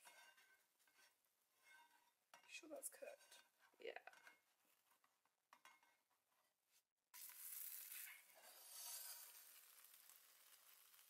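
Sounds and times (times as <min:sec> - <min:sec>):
pancake sizzling in a frying pan: 0:07.1 - 0:11.0.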